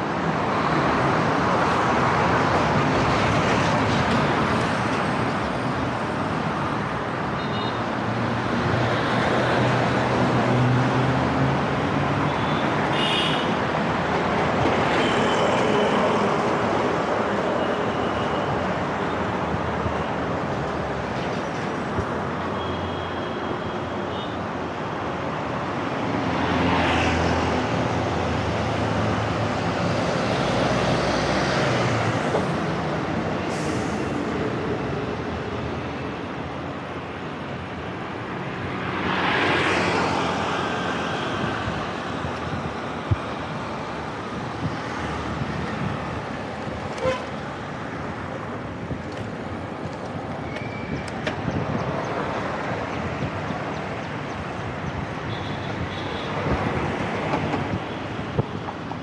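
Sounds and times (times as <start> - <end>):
road and wind noise: 0.0 - 59.0
vehicles passing: 0.0 - 59.0
vehicle horn toot: 12.4 - 13.5, 47.0 - 47.3.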